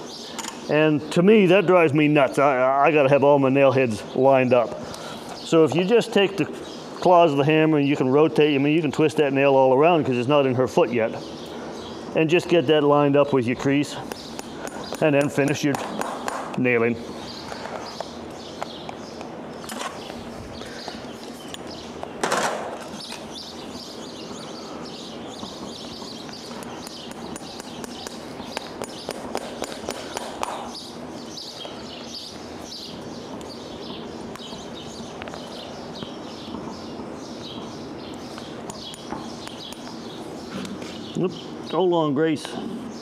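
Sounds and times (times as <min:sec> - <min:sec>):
birds chirping: 0:00.0 - 0:43.0
hammer tapping horseshoe nails: 0:27.1 - 0:30.7.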